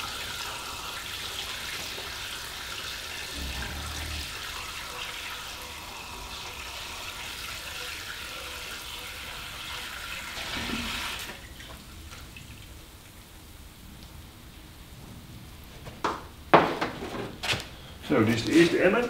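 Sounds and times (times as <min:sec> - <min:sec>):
liquid pouring into a bucket: 0:00.0 - 0:12.7.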